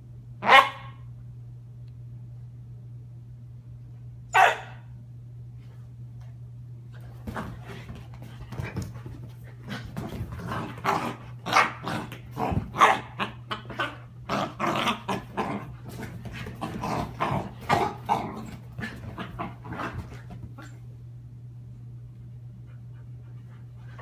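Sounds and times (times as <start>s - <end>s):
steady low hum: 0.0s - 24.0s
puppy growling: 9.6s - 20.7s.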